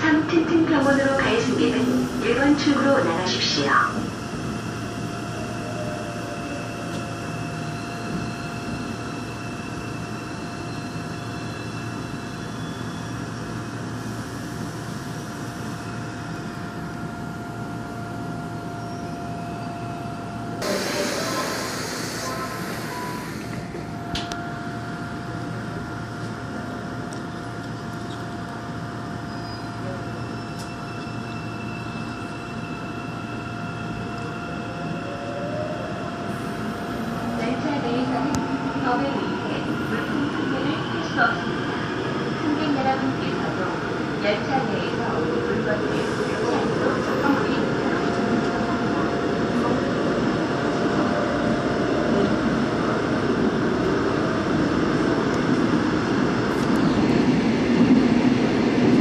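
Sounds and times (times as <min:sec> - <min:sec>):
subway train equipment humming: 0:00.0 - 0:59.0.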